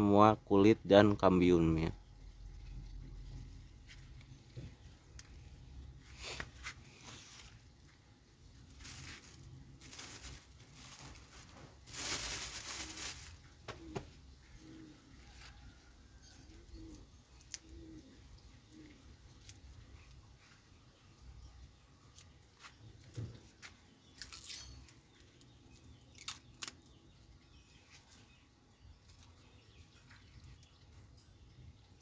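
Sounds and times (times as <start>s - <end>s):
dove cooing: 10.8s - 15.9s, 16.5s - 19.7s.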